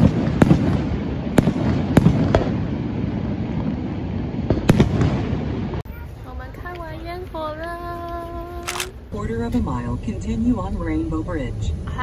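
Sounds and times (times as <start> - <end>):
fireworks bursting with sharp bangs: 0.0 - 5.9.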